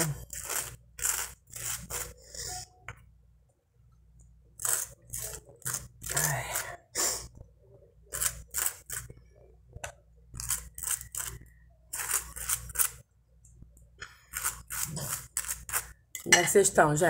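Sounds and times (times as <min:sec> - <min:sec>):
knife scraping bread roll: 0:00.0 - 0:02.7, 0:04.6 - 0:06.8, 0:08.1 - 0:09.2, 0:10.4 - 0:13.0, 0:14.2 - 0:16.0.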